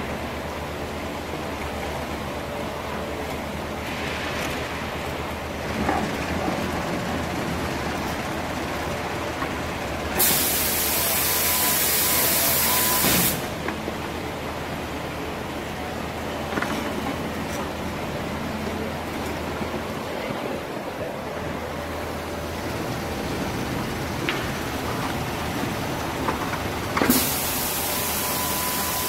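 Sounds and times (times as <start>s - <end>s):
loud hiss: 10.2s - 13.6s, 27.0s - 29.0s.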